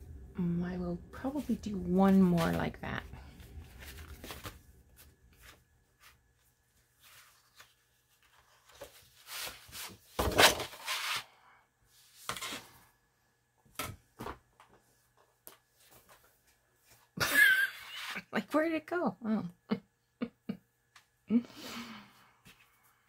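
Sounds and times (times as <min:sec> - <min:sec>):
paper pages rustling: 0:01.4 - 0:11.2.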